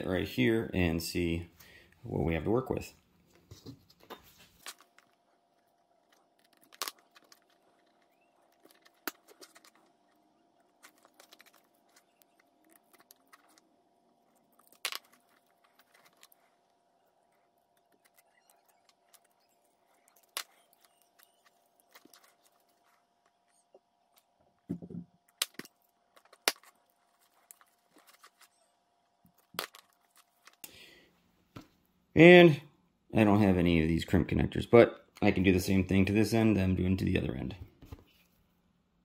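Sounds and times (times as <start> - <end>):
insulation crinkling and crackling: 2.5 - 30.7.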